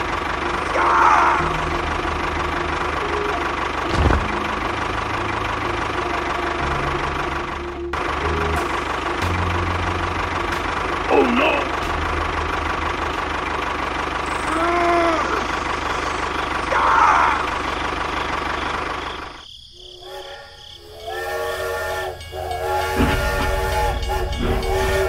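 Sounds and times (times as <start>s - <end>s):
engine-like running noise: 0.0s - 25.0s
steam locomotive whistle: 20.0s - 25.0s
low rumble: 22.2s - 25.0s.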